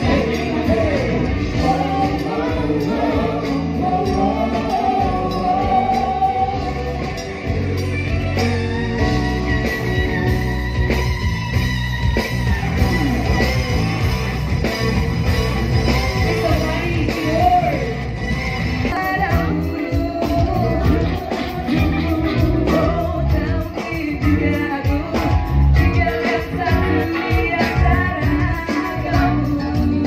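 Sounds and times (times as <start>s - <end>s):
person singing: 0.0s - 7.6s, 18.9s - 30.0s
bass and drums: 0.0s - 30.0s
electric guitar: 0.0s - 30.0s.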